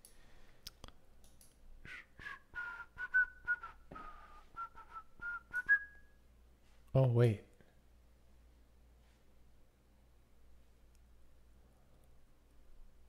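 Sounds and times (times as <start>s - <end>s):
person whistling a tune: 1.9s - 6.2s.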